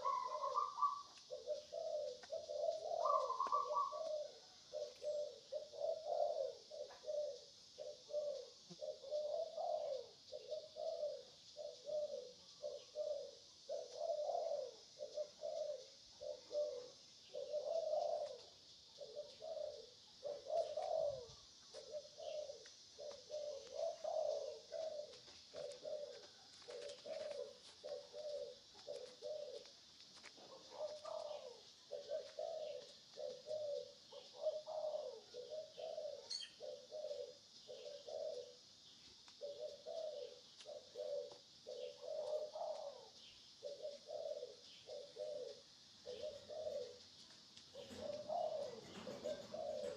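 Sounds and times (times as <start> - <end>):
young monkey whimpering coos: 30.7 - 38.6, 47.8 - 49.9.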